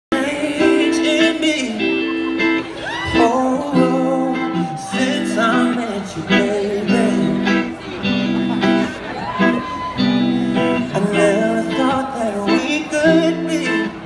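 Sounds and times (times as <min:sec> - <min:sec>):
person singing wordlessly: 0:00.1 - 0:02.1, 0:03.0 - 0:07.7, 0:10.8 - 0:14.0
bass guitar: 0:00.1 - 0:14.0
electric guitar chords: 0:00.1 - 0:14.0.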